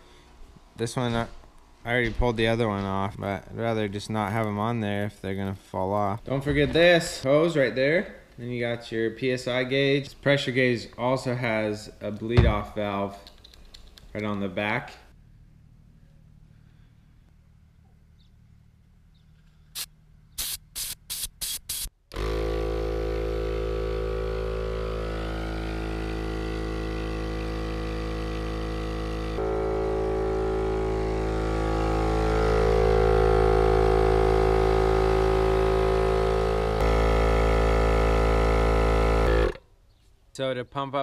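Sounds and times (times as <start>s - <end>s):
portable air compressor running: 19.8s - 39.6s.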